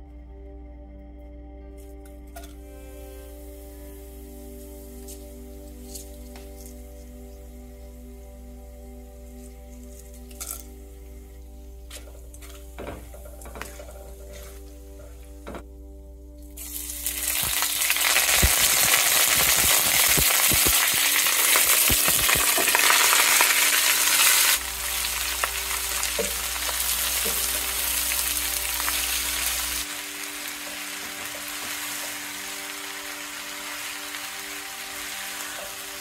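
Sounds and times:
leaves sizzling in hot oil: 3.2s - 8.3s, 16.6s - 36.0s
onions frying: 3.2s - 8.3s, 9.1s - 15.6s, 16.5s - 36.0s.

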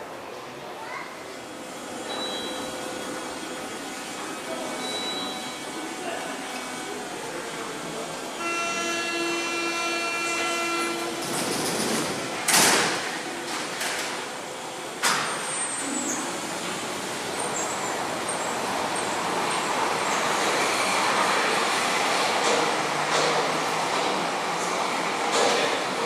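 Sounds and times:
train running noise: 0.0s - 26.0s
door-closing warning tone: 2.1s - 2.8s, 4.8s - 5.6s
train doors banging shut: 9.6s - 14.3s.

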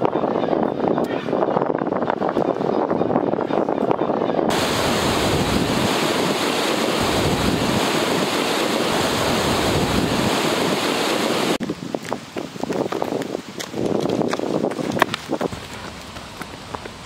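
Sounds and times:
river water rushing: 4.5s - 11.6s.

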